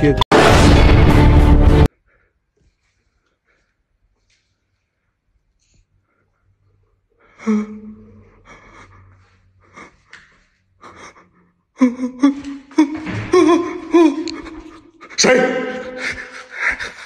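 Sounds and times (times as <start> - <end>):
man gasping and crying out: 10.9 - 17.0.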